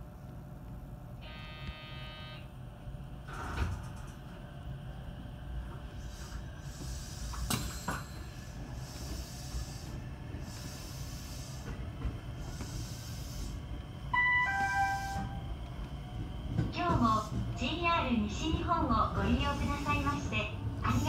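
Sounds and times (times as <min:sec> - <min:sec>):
train rumble: 0:02.5 - 0:21.0
two-note electronic chime: 0:14.2 - 0:15.3.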